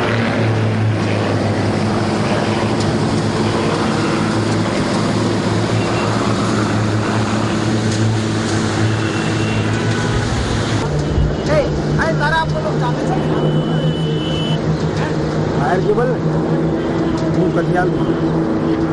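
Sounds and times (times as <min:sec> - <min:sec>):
propeller aircraft engines droning: 0:00.0 - 0:18.9.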